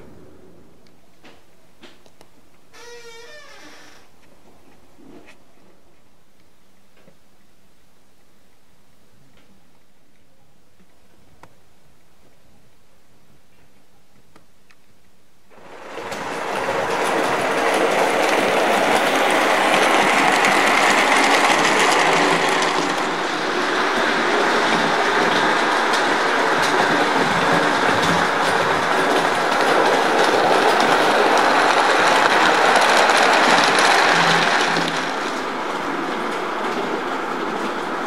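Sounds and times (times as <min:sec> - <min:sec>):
model train wheels clattering: 0:15.8 - 0:35.5.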